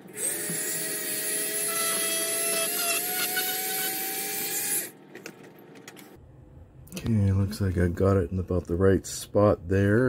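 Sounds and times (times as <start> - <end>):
small electric drill whining: 0.2 - 4.9.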